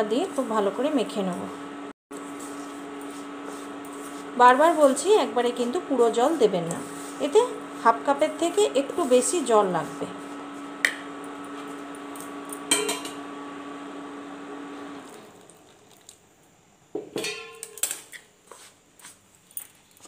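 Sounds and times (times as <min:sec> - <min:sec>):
spoon clinking in steel bowl: 0:12.7 - 0:13.2.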